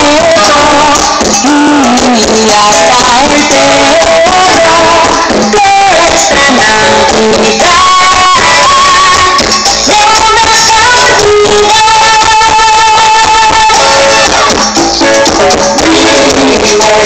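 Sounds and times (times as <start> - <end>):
loud music over sound system: 0.0 - 17.0.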